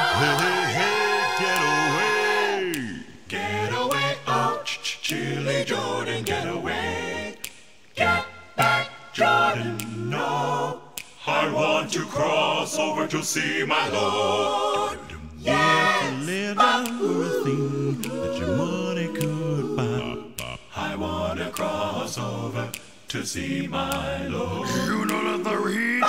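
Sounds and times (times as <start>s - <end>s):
male a cappella group singing: 0.0s - 26.0s
deep bass voice singing: 18.2s - 20.8s, 24.6s - 25.7s.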